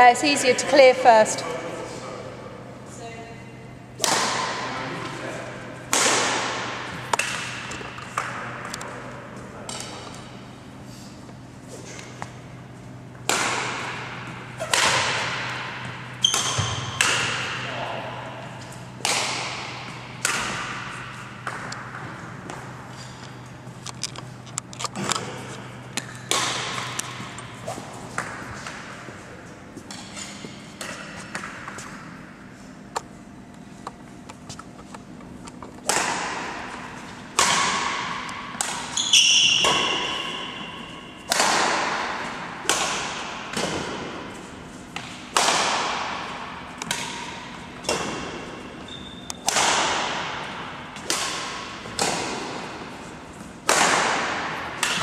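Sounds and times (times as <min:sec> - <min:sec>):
rackets striking shuttlecock: 0:04.0 - 0:04.7, 0:05.9 - 0:09.0, 0:13.2 - 0:17.7, 0:18.4 - 0:24.2, 0:25.9 - 0:29.0, 0:35.6 - 0:55.0.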